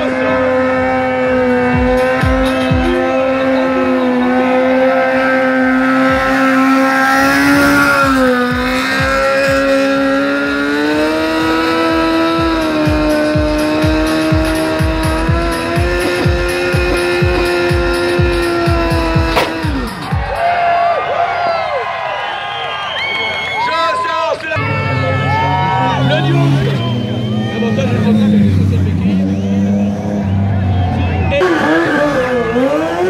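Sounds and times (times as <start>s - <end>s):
motorcycle engine at high revs: 0.0s - 20.0s, 26.0s - 30.2s, 31.3s - 33.0s.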